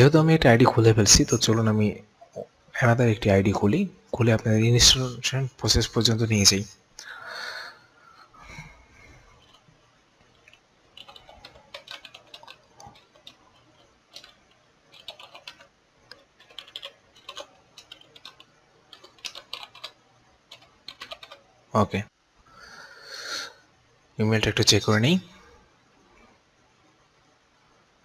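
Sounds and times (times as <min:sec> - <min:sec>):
keyboard typing: 0:09.3 - 0:09.7, 0:10.3 - 0:21.5.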